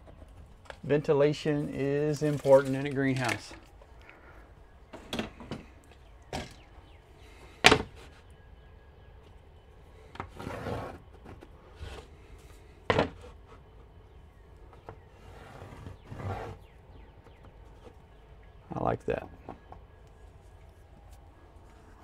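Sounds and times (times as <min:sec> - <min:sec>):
scraping rustle: 0:00.1 - 0:03.8, 0:10.2 - 0:13.6, 0:14.8 - 0:16.8.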